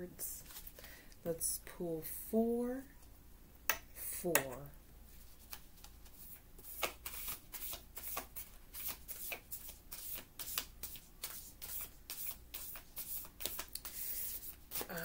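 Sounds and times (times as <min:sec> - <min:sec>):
cards being shuffled: 0:00.4 - 0:00.8, 0:05.1 - 0:15.0.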